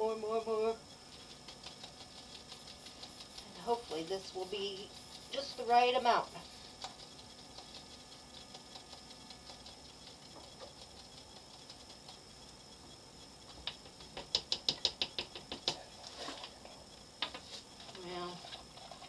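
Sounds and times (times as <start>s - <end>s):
rapid clicks: 0.8s - 17.4s
glitter container shaken and tapped: 1.1s - 12.2s, 13.5s - 16.6s.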